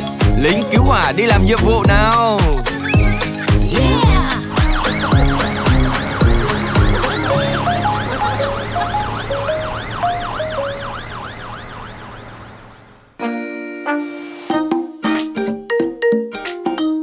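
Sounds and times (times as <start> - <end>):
drums: 0.0 - 7.9
simple backing tune: 0.0 - 11.1
cartoon fire engine siren: 4.0 - 13.1.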